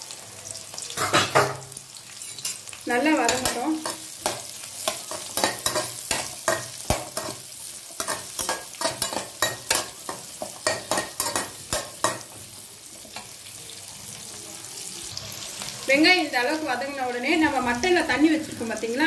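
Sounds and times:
food sizzling in oil: 0.0 - 19.0
metal spatula scraping a pan: 1.0 - 12.4.

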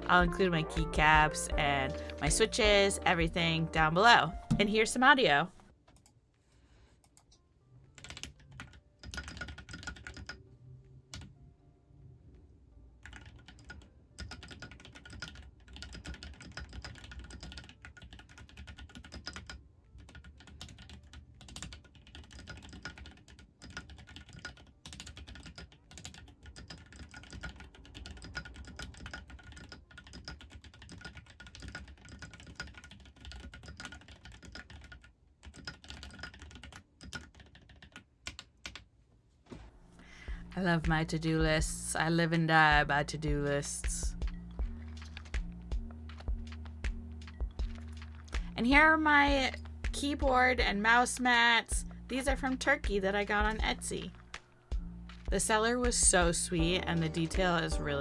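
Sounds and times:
mechanical keyboard typing: 8.0 - 10.4, 13.0 - 38.8, 44.2 - 50.2.

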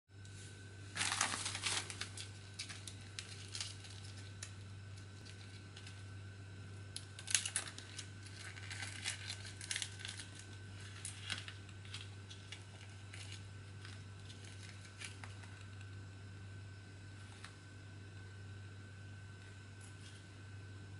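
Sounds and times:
steady low hum: 0.1 - 20.9
plastic packaging crinkling: 0.9 - 6.2, 6.9 - 16.0.

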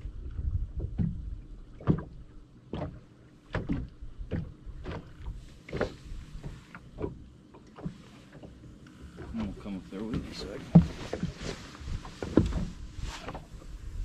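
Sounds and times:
wind rumble on microphone: 0.0 - 2.3, 9.2 - 14.0
waves slapping against boat hull: 0.0 - 14.0.

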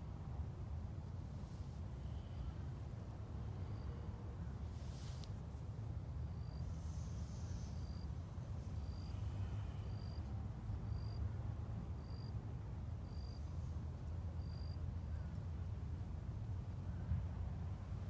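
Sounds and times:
insect chirping: 6.2 - 11.2, 12.0 - 12.4, 13.0 - 13.6, 14.4 - 14.8.

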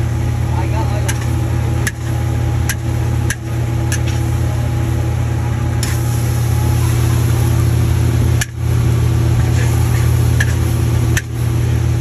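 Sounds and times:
gas stove burner rumble: 0.0 - 12.0.

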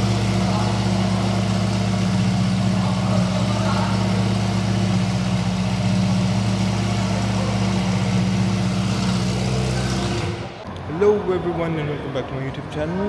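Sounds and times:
car engine idling: 0.0 - 10.6.

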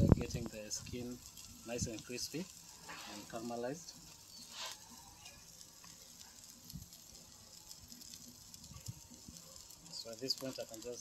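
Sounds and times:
chicken sizzling on grill: 0.0 - 11.0
crackle: 0.0 - 11.0.

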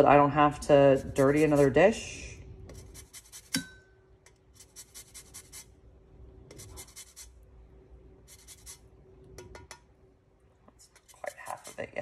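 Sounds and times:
zester rasping on lime rind: 2.7 - 3.6, 4.5 - 5.7, 6.5 - 7.4, 8.2 - 8.8, 10.9 - 12.0.

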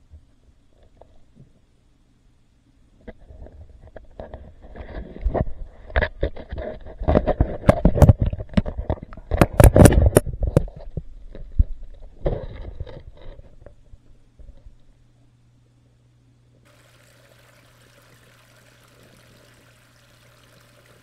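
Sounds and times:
sharp underwater clicks and knocks: 3.0 - 13.8.

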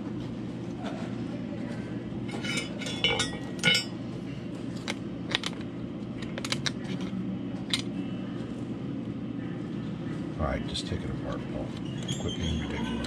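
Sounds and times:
metal tools clinking on metal: 2.3 - 4.0.

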